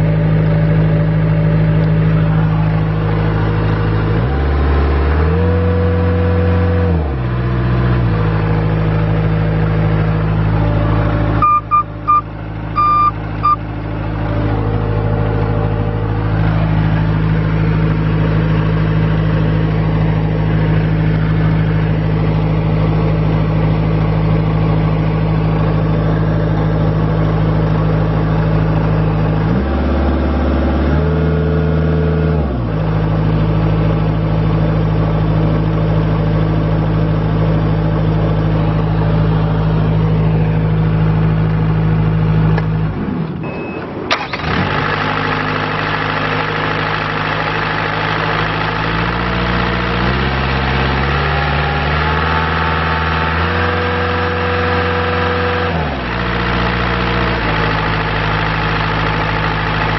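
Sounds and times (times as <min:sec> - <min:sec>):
diesel engine running and revving: 0:00.0 - 0:59.9.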